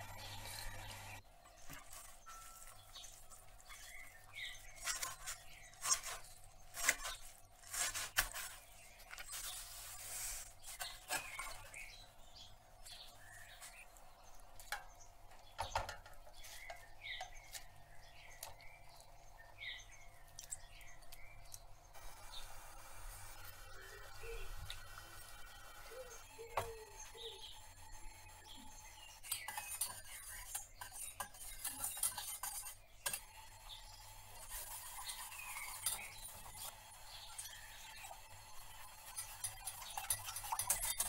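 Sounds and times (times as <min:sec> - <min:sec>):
faint bird chirps: 0:23.4 - 0:41.0.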